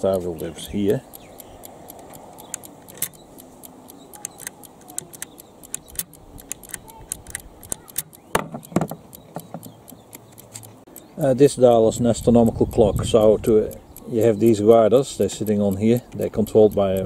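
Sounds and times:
clockwork ticking rapidly: 0.0s - 17.0s.

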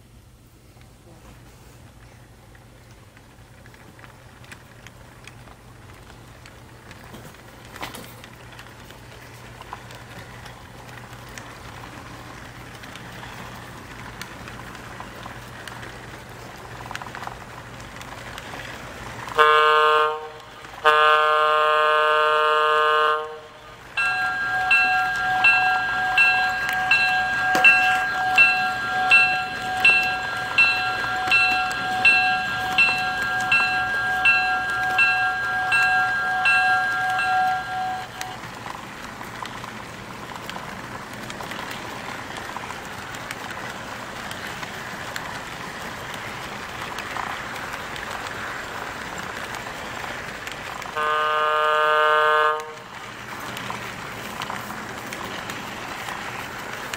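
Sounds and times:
model locomotive running on track: 0.0s - 56.9s
locomotive horn blasts: 19.4s - 38.4s, 51.0s - 52.9s
bell ringing: 24.0s - 38.4s
steady tone: 24.0s - 38.4s.

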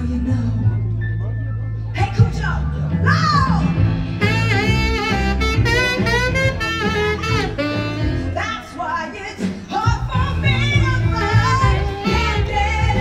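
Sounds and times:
bass line: 0.0s - 8.7s, 9.7s - 13.0s
saxophone jazz solo: 3.6s - 8.8s, 10.1s - 13.0s.

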